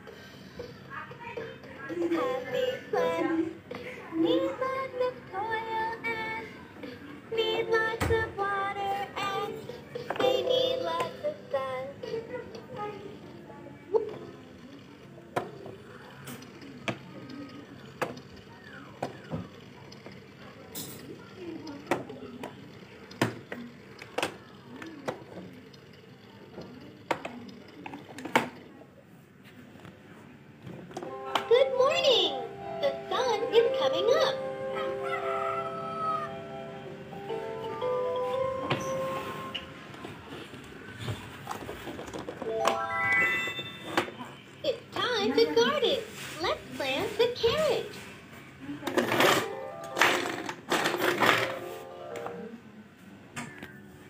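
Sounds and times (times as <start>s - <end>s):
toy playing children's song: 0.1s - 14.4s, 31.0s - 39.6s, 42.4s - 44.0s
plastic toy knocks and clicks: 15.3s - 18.4s, 21.7s - 28.7s.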